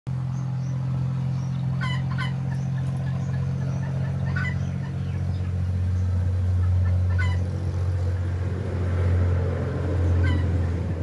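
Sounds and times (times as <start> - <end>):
loud steady low hum: 0.1 - 11.0
young chicken peeping: 0.3 - 7.5, 10.1 - 10.5.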